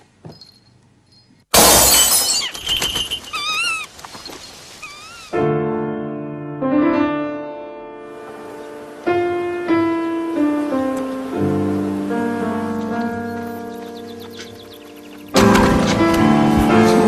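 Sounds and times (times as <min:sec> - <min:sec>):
glass breaking: 0:01.5 - 0:03.6
short warbling calls: 0:02.3 - 0:05.4
soft piano music: 0:05.4 - 0:17.0.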